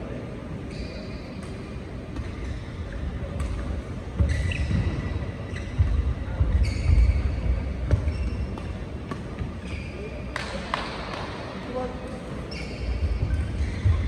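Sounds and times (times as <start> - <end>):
shoes squeaking on court: 0.6 - 10.3, 12.4 - 14.0.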